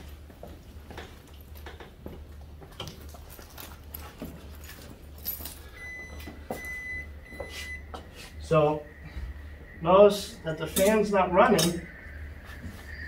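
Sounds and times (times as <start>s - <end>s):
refrigerator high-pitched whine: 0.0s - 13.0s
low hum: 4.6s - 13.0s.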